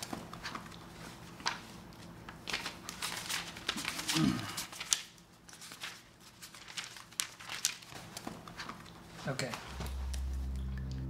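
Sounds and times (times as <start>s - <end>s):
pages turning: 0.0s - 10.4s
low falling sound: 9.7s - 11.0s.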